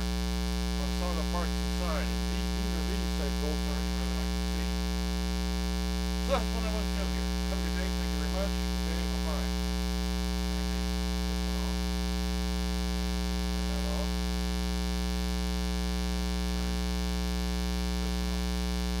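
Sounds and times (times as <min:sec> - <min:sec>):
mains hum: 0:00.0 - 0:19.0.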